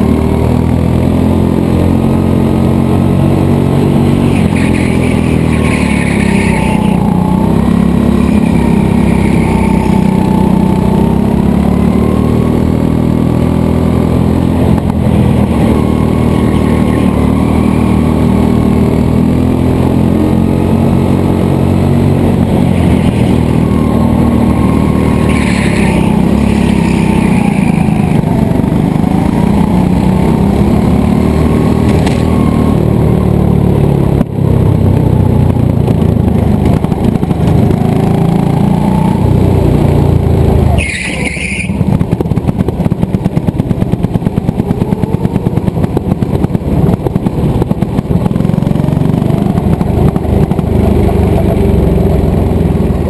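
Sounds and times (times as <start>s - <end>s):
go-kart engine at full throttle: 0.0s - 53.0s
brief high squeals: 40.7s - 41.8s.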